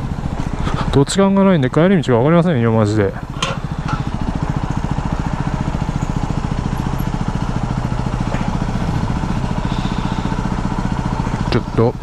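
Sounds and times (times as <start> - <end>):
motorcycle engine putter: 3.1 - 12.0.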